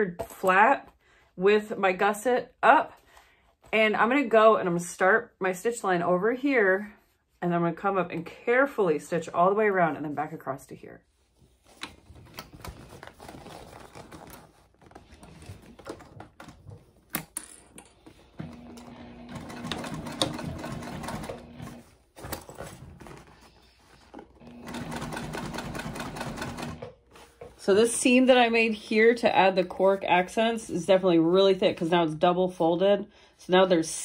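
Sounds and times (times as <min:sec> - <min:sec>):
sewing machine stitching: 0:18.3 - 0:21.9, 0:24.4 - 0:26.9.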